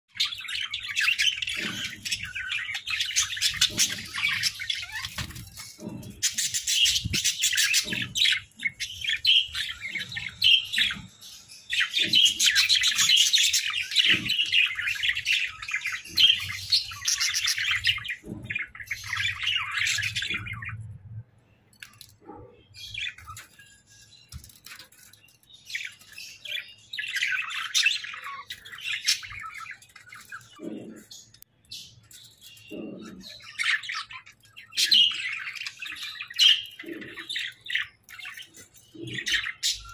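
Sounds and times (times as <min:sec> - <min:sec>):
budgerigars chattering: 0:00.1 - 0:11.1, 0:25.7 - 0:39.9.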